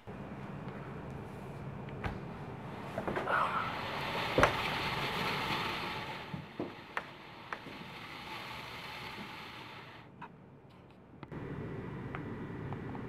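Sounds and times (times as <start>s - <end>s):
steady hiss: 3.6s - 10.1s.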